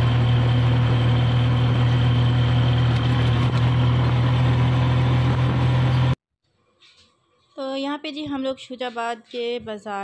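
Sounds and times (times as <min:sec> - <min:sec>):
motor rickshaw engine droning: 0:00.0 - 0:06.2.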